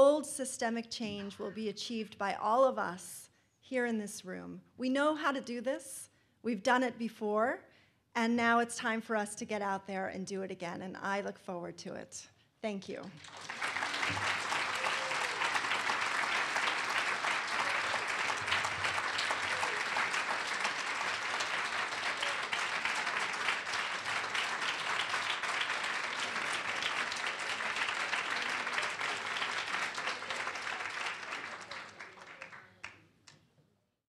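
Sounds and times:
audience applauding: 0:13.2 - 0:33.0.

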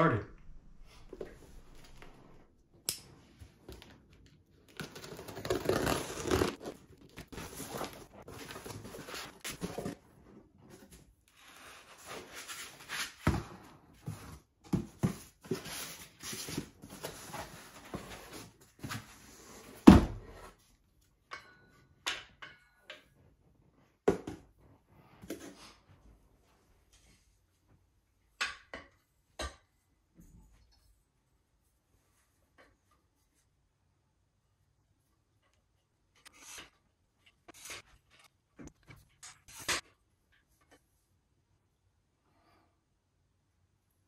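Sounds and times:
cardboard tearing: 0:04.7 - 0:09.9
cardboard rustling and scraping: 0:04.7 - 0:20.6.

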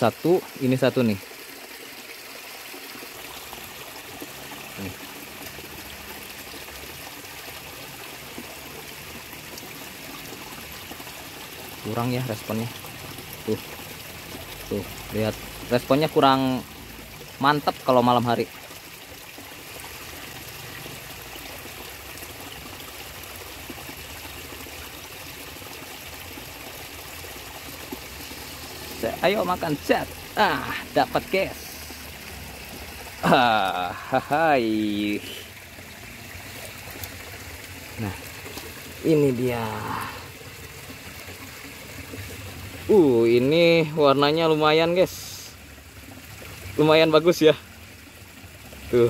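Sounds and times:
stream trickling: 0:00.0 - 0:49.0.

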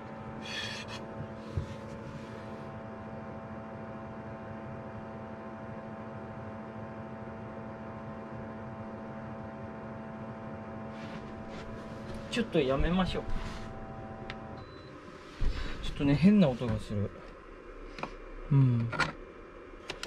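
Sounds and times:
air conditioner fan humming: 0:00.0 - 0:20.0
hand rustling on a case: 0:11.0 - 0:12.4.

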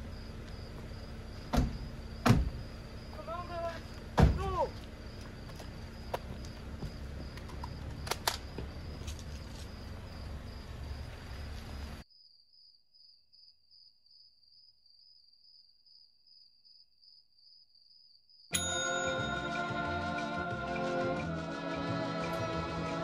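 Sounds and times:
low outdoor rumble: 0:00.0 - 0:12.0
crickets chirping: 0:00.0 - 0:18.8
sharp clicks: 0:07.4 - 0:08.5.

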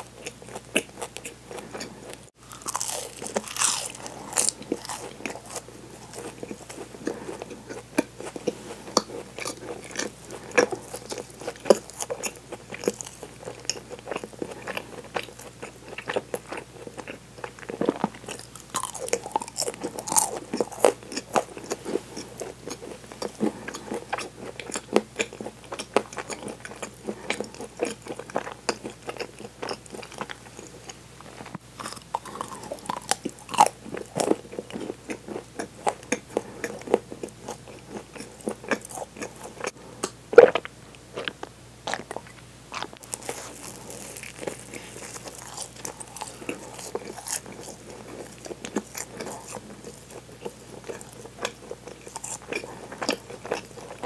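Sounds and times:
chewing crunches: 0:00.0 - 0:54.0.

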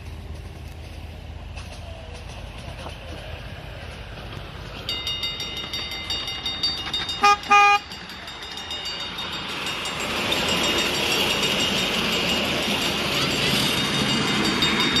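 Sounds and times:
train running by: 0:00.0 - 0:15.0
model train horn toots: 0:07.2 - 0:08.0.

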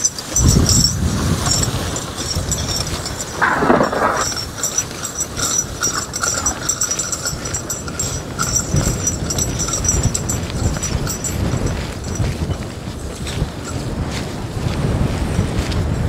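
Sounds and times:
horse walking: 0:00.0 - 0:16.0
sled scraping along the ground: 0:00.0 - 0:16.0
wind on microphone: 0:00.0 - 0:16.0.

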